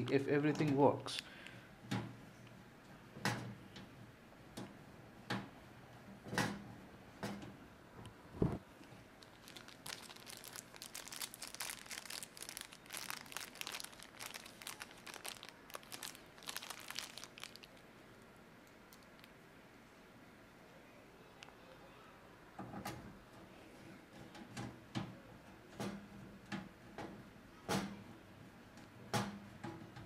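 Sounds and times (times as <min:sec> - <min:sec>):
crinkling rustle: 0:08.7 - 0:17.9, 0:18.6 - 0:19.4.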